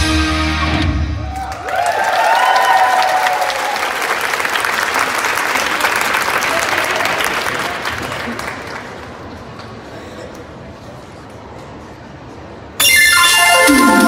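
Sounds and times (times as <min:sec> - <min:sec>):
live stage music: 0:00.0 - 0:01.5, 0:12.8 - 0:14.0
audience applause: 0:01.3 - 0:09.3.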